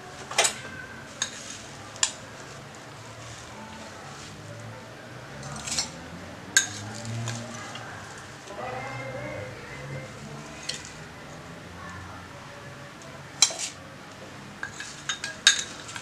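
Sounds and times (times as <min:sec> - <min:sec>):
scraping rustle: 0:00.2 - 0:04.5
glassware clinking: 0:14.6 - 0:16.0.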